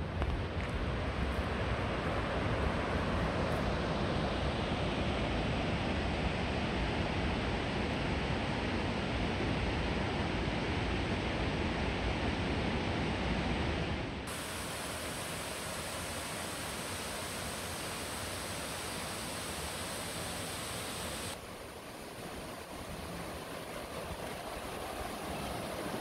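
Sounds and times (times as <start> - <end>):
rushing water with low rumble: 0.0 - 26.0
small waterfall hissing: 14.3 - 26.0.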